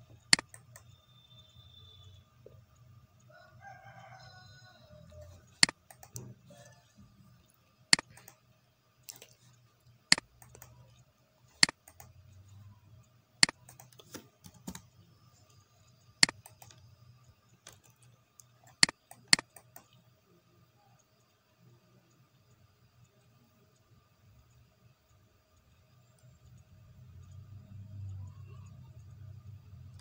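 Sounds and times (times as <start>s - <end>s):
mouse clicking: 0.0s - 2.2s, 5.1s - 6.4s, 7.4s - 8.4s, 9.1s - 12.8s, 13.4s - 15.6s, 16.2s - 16.9s, 17.5s - 20.0s
faint low hum: 0.0s - 30.0s.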